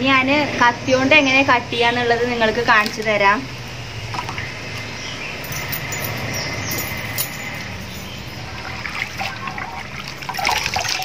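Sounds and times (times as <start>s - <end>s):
water trickling: 7.3s - 11.0s
water splashing: 8.3s - 11.0s.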